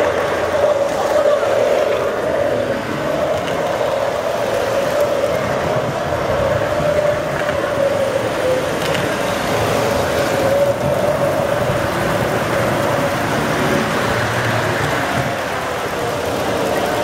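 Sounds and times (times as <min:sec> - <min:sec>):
wheels rumbling on track: 0:00.0 - 0:17.0.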